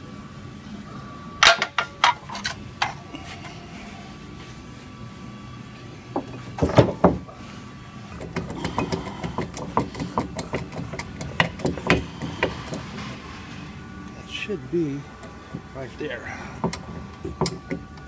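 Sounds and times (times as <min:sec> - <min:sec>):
metal clicks and creaks: 0:01.4 - 0:03.0, 0:08.1 - 0:13.2, 0:16.6 - 0:18.0.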